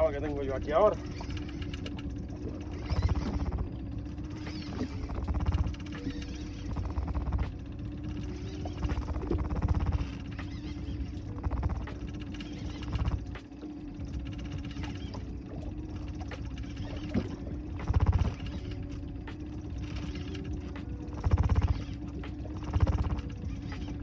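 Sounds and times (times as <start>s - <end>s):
fishing reel clicking: 0.0s - 24.0s
steady hum: 0.0s - 24.0s.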